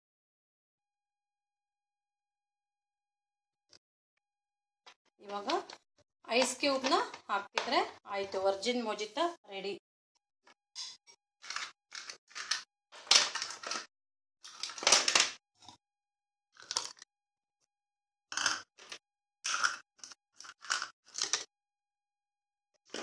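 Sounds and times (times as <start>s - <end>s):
ice cubes cracking: 11.4s - 15.4s, 16.6s - 17.0s, 18.3s - 21.5s.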